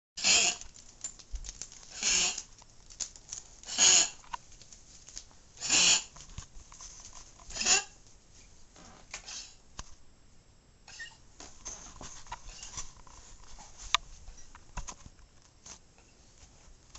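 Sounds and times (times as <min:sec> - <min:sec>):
dog coughing: 0:03.7 - 0:04.2.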